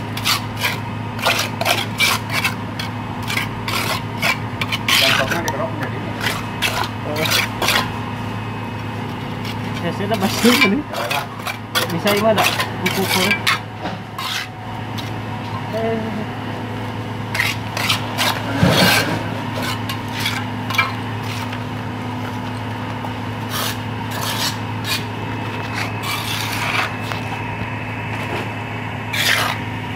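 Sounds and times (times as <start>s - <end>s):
steady low hum: 0.0s - 29.9s
hand tool scraping wet cement: 0.1s - 7.9s, 9.4s - 15.2s, 17.3s - 22.6s, 23.4s - 27.4s, 29.1s - 29.7s.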